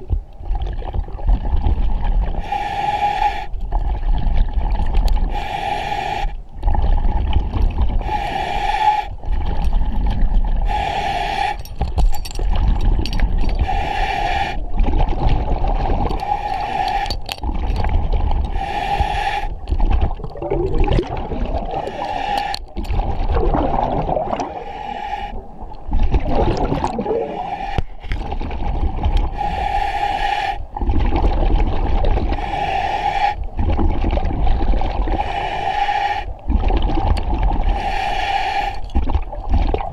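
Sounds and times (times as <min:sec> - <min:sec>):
exhaled bubbles gurgling: 0:00.0 - 0:02.5, 0:03.2 - 0:05.4, 0:06.6 - 0:08.2, 0:09.1 - 0:10.8, 0:12.4 - 0:29.8, 0:30.6 - 0:39.9
diver inhaling through regulator: 0:02.4 - 0:03.6, 0:05.2 - 0:06.4, 0:08.0 - 0:09.2, 0:10.6 - 0:11.7, 0:13.6 - 0:14.7, 0:16.2 - 0:17.2, 0:18.5 - 0:19.6, 0:21.6 - 0:22.7, 0:24.2 - 0:25.6, 0:27.0 - 0:28.2, 0:29.2 - 0:30.7, 0:32.2 - 0:33.5, 0:35.0 - 0:36.4, 0:37.6 - 0:38.9.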